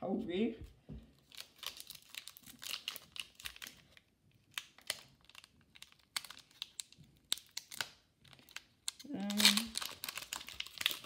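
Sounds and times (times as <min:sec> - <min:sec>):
card pack wrapper crinkling: 0:01.2 - 0:11.0.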